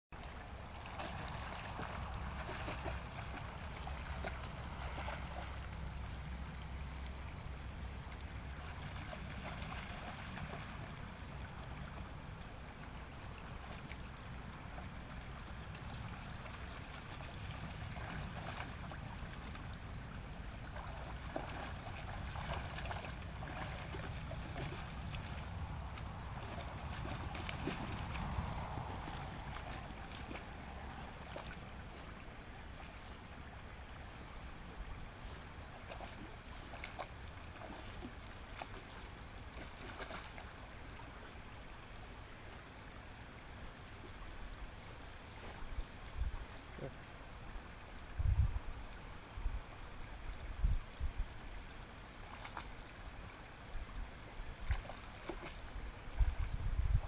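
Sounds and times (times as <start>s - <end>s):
dogs splashing in water: 0.8s - 5.6s, 8.5s - 10.9s, 15.7s - 19.5s, 20.7s - 31.6s, 35.8s - 40.5s, 54.6s - 55.6s.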